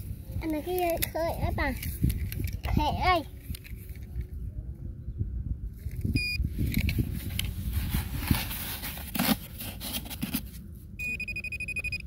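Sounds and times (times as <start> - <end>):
hands and probe scraping in sandy soil: 6.0 - 10.7
metal detector steady high beep: 6.2 - 6.4, 11.0 - 12.0.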